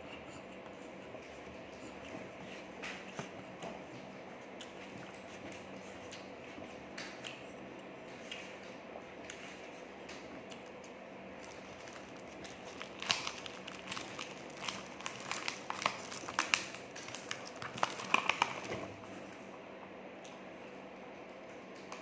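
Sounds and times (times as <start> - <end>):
plastic crinkling and clicking: 11.4 - 18.9.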